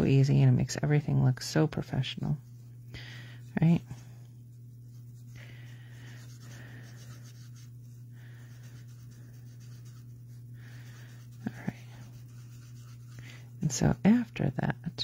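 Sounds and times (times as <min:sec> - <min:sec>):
steady low hum: 0:00.0 - 0:15.0
marker scratching on card: 0:06.1 - 0:07.8, 0:08.6 - 0:10.4, 0:11.0 - 0:13.2.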